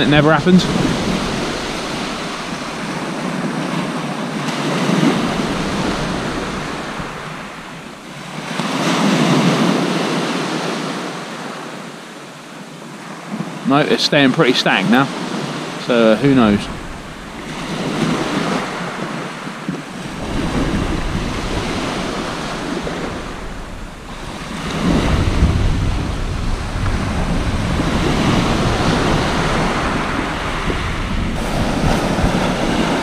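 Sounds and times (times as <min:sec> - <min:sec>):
wind buffeting microphone: 0:00.0 - 0:10.7, 0:14.9 - 0:33.0
waves breaking on shingle beach: 0:00.0 - 0:33.0.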